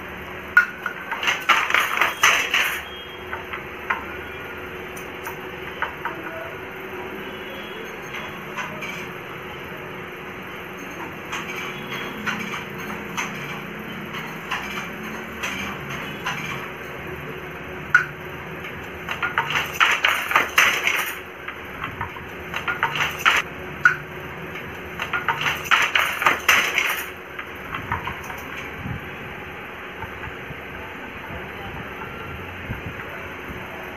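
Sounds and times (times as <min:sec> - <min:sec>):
wooden handloom clicking and clattering: 0:00.5 - 0:04.1, 0:04.9 - 0:06.4, 0:08.0 - 0:09.2, 0:10.9 - 0:17.0, 0:17.9 - 0:28.8.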